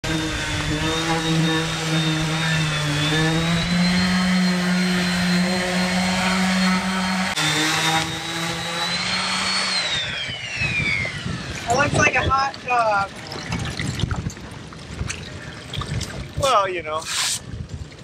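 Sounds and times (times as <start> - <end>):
electric orbital sander whining: 0.0 - 13.1.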